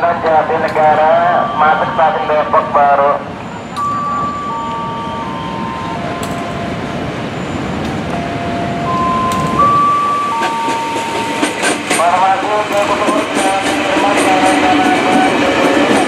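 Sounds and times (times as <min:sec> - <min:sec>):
train wheels rumbling on rail: 0:03.2 - 0:16.0.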